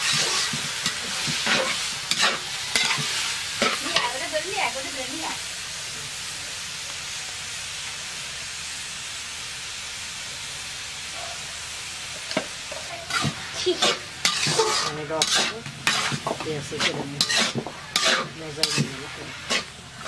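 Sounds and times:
metal spatula scraping a pan: 0.0s - 4.2s, 12.7s - 20.0s
onions sizzling in a wok: 0.0s - 20.0s.

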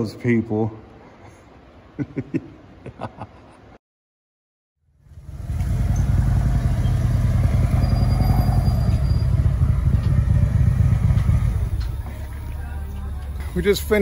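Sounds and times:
motorcycle engine rumble: 4.9s - 14.0s.

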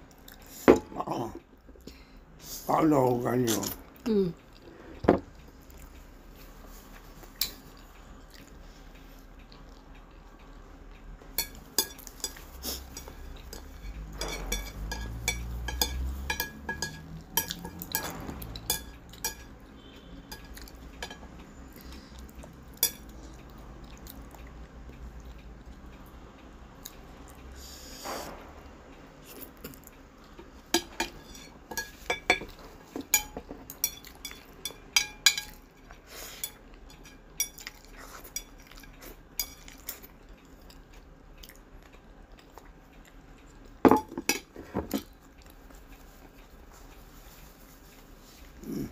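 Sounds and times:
chopsticks clicking on ceramic plate: 11.4s - 19.6s.

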